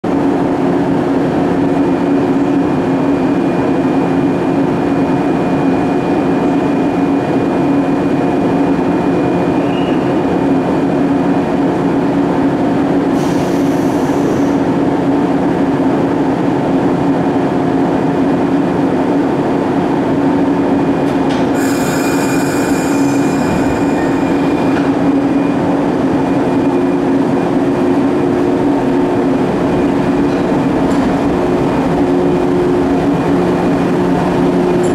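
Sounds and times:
brief air hisses: 13.2s - 14.6s
electric train equipment humming: 14.1s - 34.9s.

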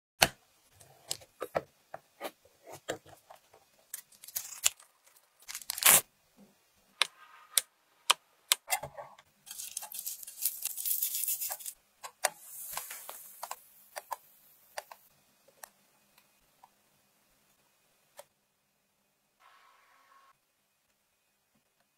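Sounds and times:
packaging crinkling and tearing: 3.9s - 6.0s, 9.5s - 11.8s.

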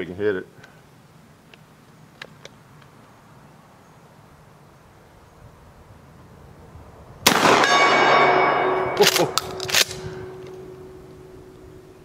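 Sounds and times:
shotgun firing: 7.2s - 10.0s
steel gong ringing: 7.5s - 9.0s, 10.2s - 11.9s
shotgun pump slide clacks: 9.0s - 10.0s.

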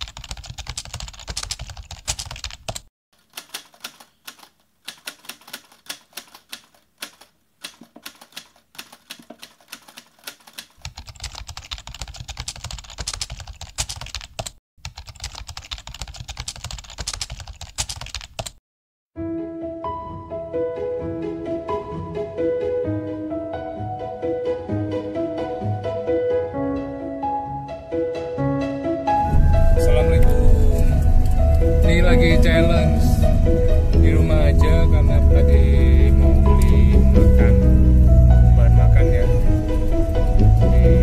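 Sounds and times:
rapid typing on a keyboard: 0.0s - 18.6s.

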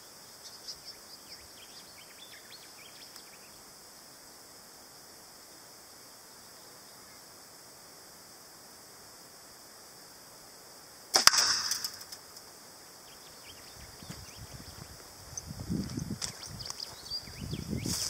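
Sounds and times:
arrow striking metal: 11.1s - 12.2s.

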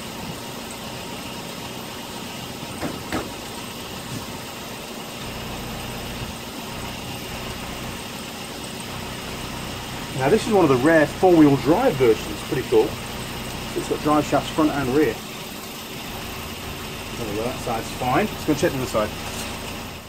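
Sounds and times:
low engine hum: 0.0s - 20.0s.

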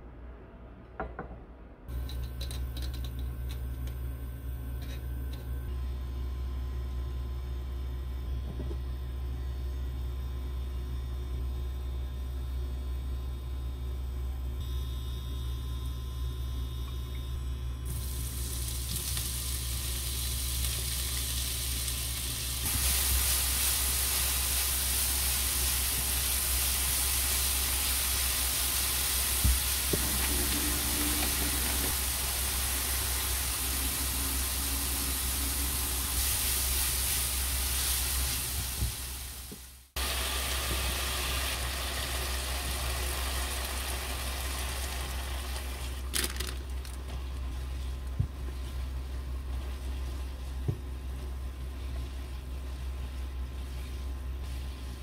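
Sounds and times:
vegetables sizzling in a frying pan: 17.9s - 46.5s
spatula stirring in a pan: 47.1s - 55.0s.

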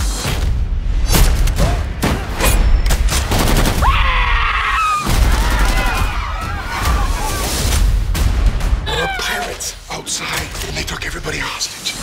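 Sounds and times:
woman screaming: 3.8s - 7.4s.

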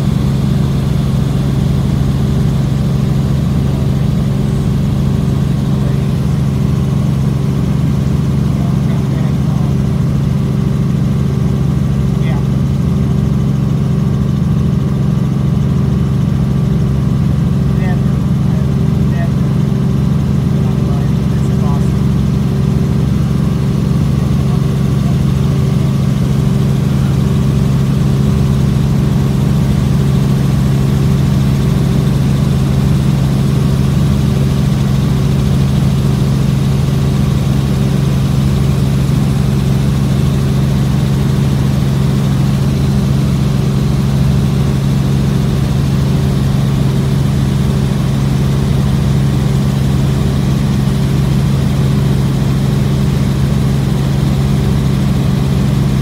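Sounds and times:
helicopter rotor drone: 0.0s - 56.0s.

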